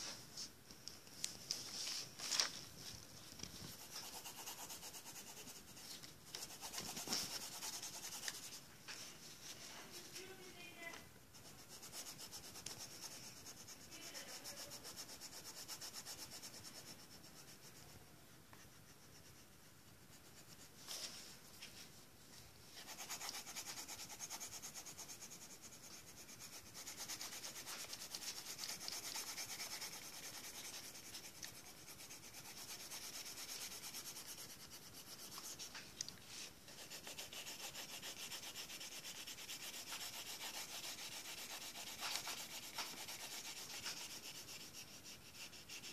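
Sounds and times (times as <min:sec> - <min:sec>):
pencil scratching on paper: 0:03.6 - 0:08.7, 0:09.6 - 0:18.0, 0:18.6 - 0:21.7, 0:22.7 - 0:45.9.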